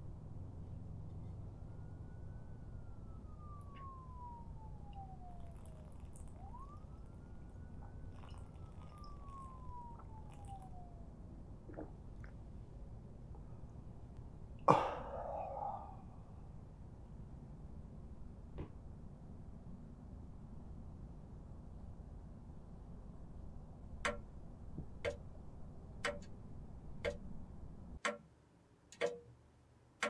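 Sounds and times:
faint siren wailing: 0.0s - 18.4s.

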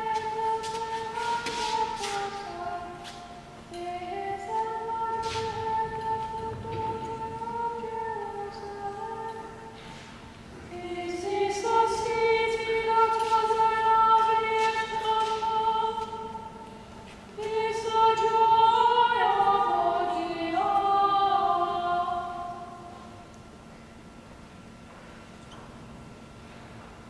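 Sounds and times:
voices singing long held notes: 10.7s - 16.6s.

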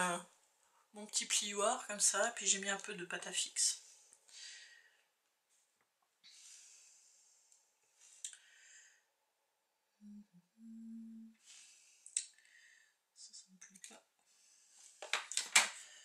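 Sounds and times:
closed-mouth hum: 10.0s - 12.3s.

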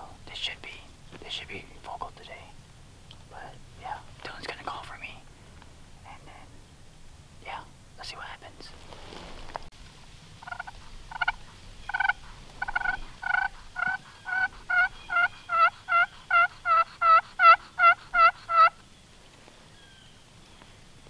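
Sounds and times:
turkey call yelps: 10.4s - 18.8s.

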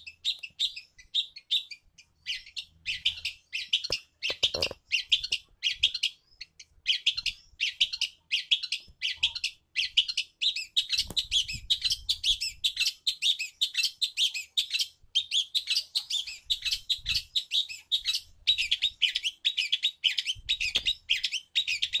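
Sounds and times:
shrike chattering: 3.1s - 5.4s.

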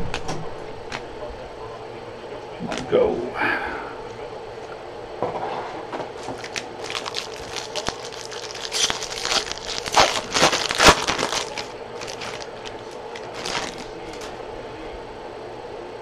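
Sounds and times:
card pack wrapper crinkling: 6.2s - 14.3s.

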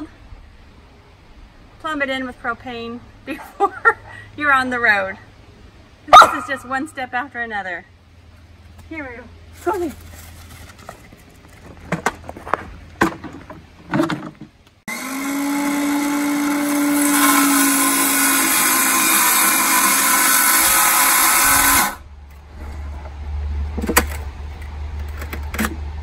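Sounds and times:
circular saw cutting wood: 14.9s - 22.9s.

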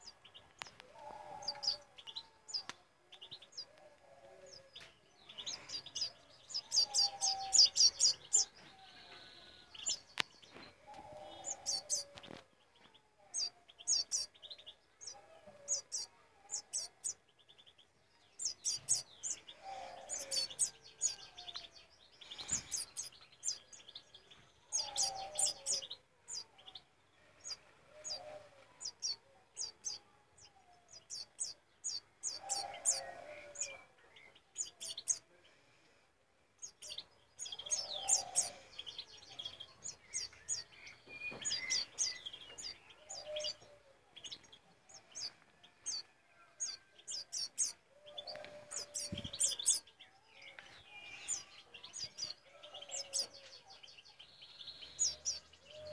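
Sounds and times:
bird chick begging chirps: 0.0s - 10.2s, 10.8s - 12.4s, 18.4s - 24.0s, 24.6s - 30.0s, 30.9s - 35.3s, 36.6s - 50.0s.

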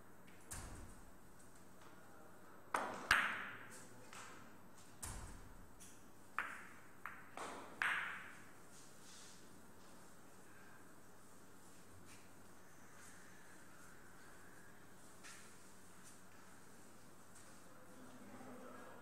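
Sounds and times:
cue striking ball: 6.4s - 8.4s.

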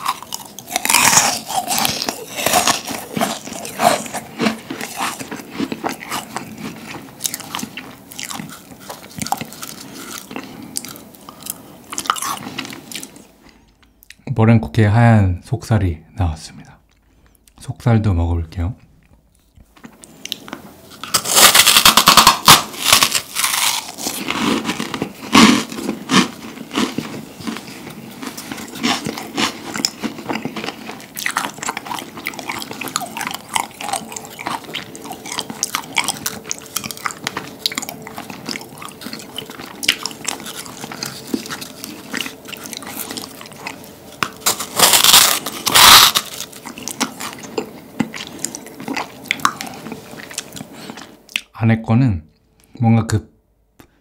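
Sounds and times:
crunching meringue cookie: 0.0s - 13.2s, 19.8s - 51.1s.

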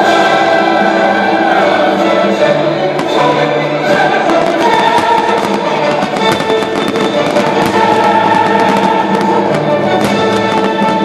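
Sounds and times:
music: 0.0s - 11.0s
fireworks cracking and popping: 3.0s - 11.0s.

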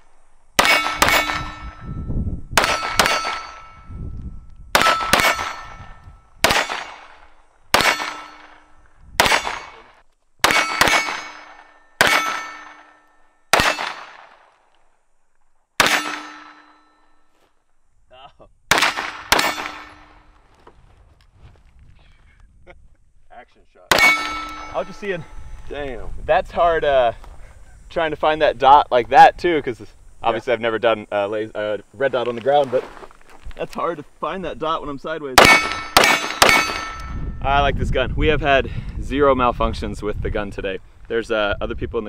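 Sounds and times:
pistol shots: 0.6s - 1.8s, 2.6s - 3.8s, 4.7s - 14.5s, 15.8s - 16.9s, 18.7s - 20.3s, 23.9s - 24.9s, 35.4s - 37.2s
steel target ringing: 0.6s - 4.0s, 4.8s - 14.2s, 15.8s - 17.3s, 18.7s - 20.3s, 23.9s - 25.4s, 35.4s - 37.4s.

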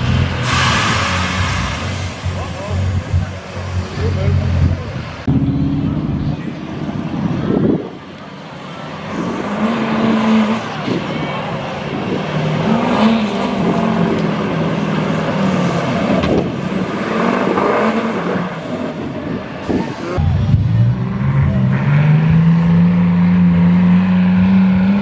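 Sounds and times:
truck engine revving under load: 0.0s - 25.0s.

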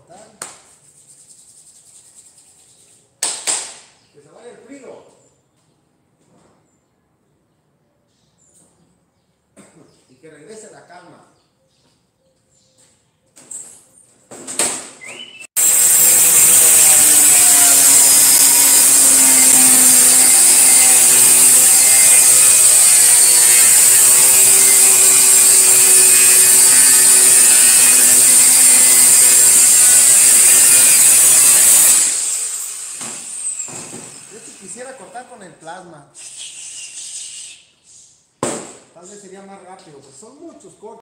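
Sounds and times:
angle grinder cutting steel: 15.6s - 35.0s
grinder winding down: 15.6s - 35.0s.

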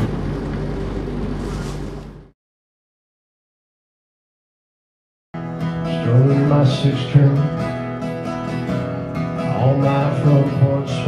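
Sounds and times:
country guitar music: 5.4s - 11.0s.

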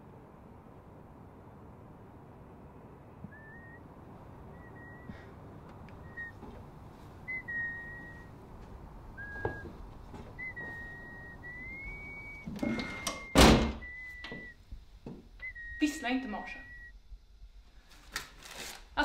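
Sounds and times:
person whistling a tune: 10.4s - 14.6s.

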